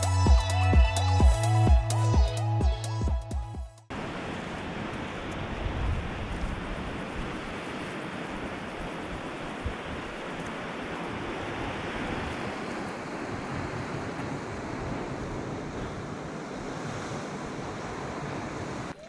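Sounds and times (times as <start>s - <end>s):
sea surf: 3.9s - 19.0s
wind: 3.9s - 19.0s.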